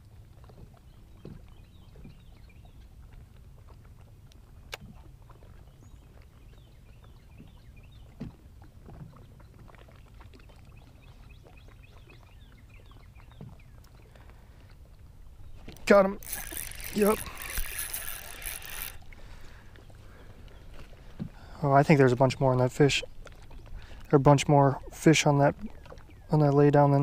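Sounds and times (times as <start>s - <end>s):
light wind: 0.0s - 27.0s
water lapping at hull: 0.0s - 27.0s
faint clicks: 15.6s - 19.2s.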